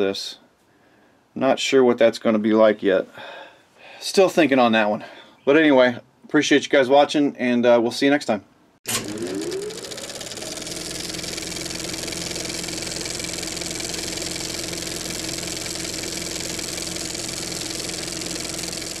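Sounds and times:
motorcycle engine revving: 0:08.9 - 0:19.0.

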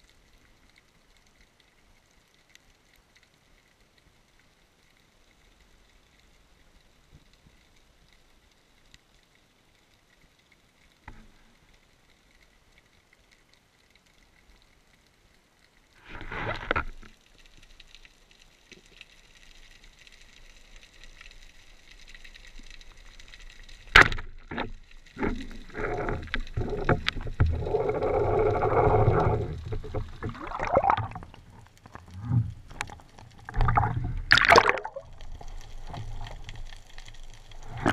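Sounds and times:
underwater rushing water: 0:19.6 - 0:37.9.

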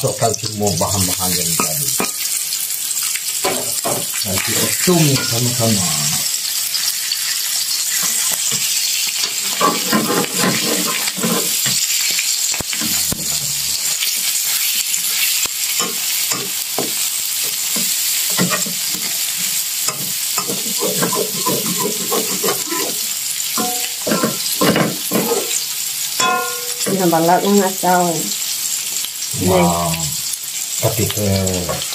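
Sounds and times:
food sizzling in oil: 0:00.0 - 0:31.9
metal spatula scraping a pan: 0:06.6 - 0:27.2.

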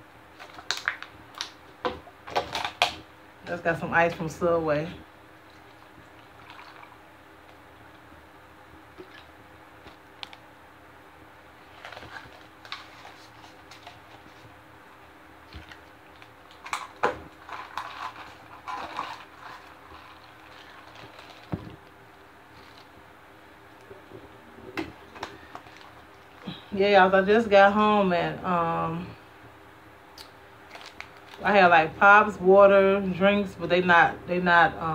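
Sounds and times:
crinkly plastic rustles: 0:11.6 - 0:14.6, 0:15.4 - 0:22.9, 0:24.9 - 0:26.5, 0:30.7 - 0:31.6.

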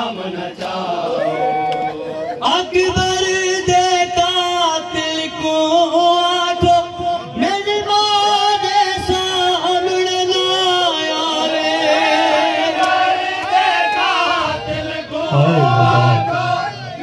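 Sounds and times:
men's voices singing along: 0:00.0 - 0:01.4, 0:10.8 - 0:17.0
man singing through a microphone: 0:02.3 - 0:12.4, 0:14.4 - 0:17.0.

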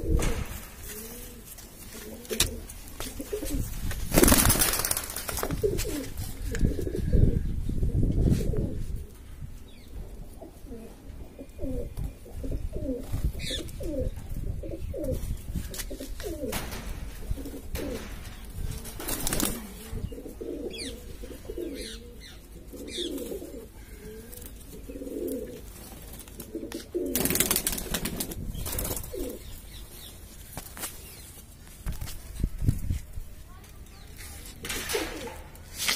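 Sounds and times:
pigeons cooing: 0:00.0 - 0:04.9, 0:05.5 - 0:08.8, 0:10.1 - 0:29.5.

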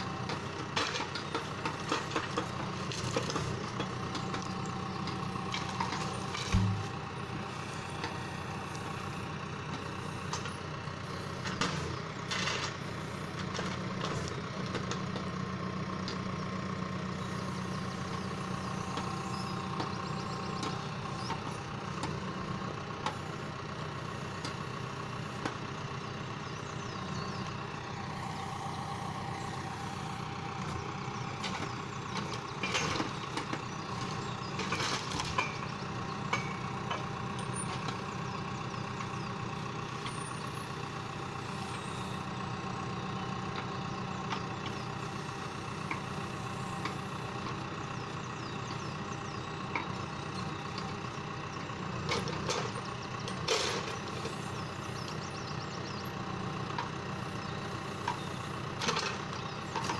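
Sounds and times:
tractor diesel engine running: 0:00.0 - 0:59.9
logs knocking: 0:06.4 - 0:07.0.

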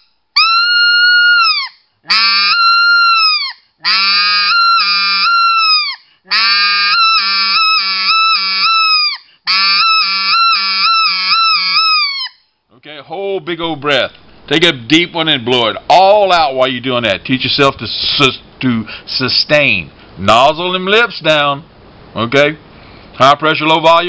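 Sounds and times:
goose call blasts: 0:00.0 - 0:12.4.

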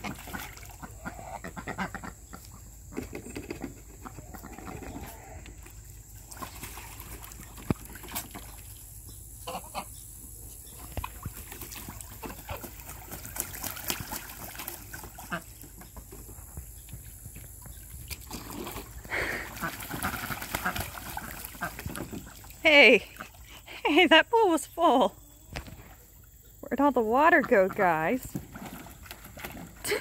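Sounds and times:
water splashing in paddling pool: 0:00.0 - 0:02.1, 0:06.1 - 0:09.6, 0:10.7 - 0:25.0, 0:25.7 - 0:30.0
geese and ducks calling: 0:00.0 - 0:03.0, 0:09.4 - 0:10.0, 0:11.7 - 0:16.3, 0:19.1 - 0:22.5.

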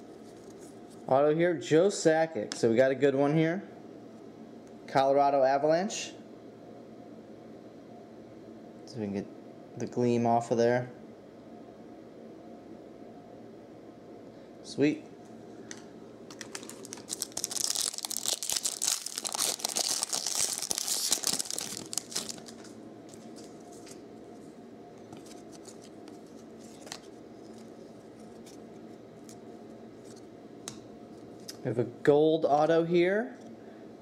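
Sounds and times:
cards flipped through: 0:16.3 - 0:24.0, 0:25.1 - 0:28.6
wrapper tearing and crinkling: 0:16.3 - 0:24.0, 0:25.2 - 0:28.6.

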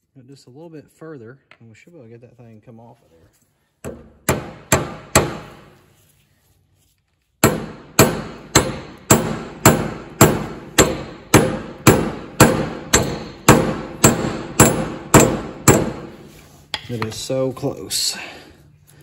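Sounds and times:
hammer striking metal hub: 0:07.4 - 0:17.2.

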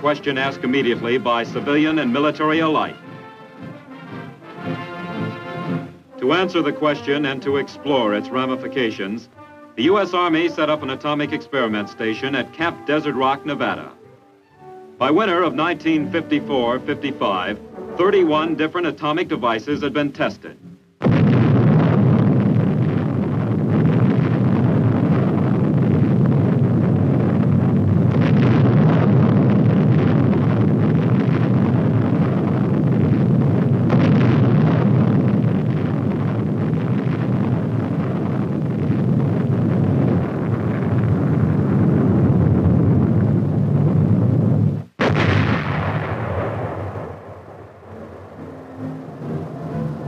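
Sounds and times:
deep rumble: 0:21.0 - 0:50.0
explosion blast: 0:21.0 - 0:50.0.

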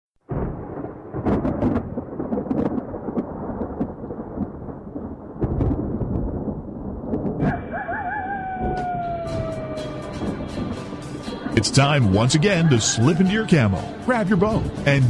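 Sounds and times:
sharp crackles: 0:00.3 - 0:07.6
rain: 0:00.3 - 0:12.4
thunder rumbling: 0:00.3 - 0:15.0.

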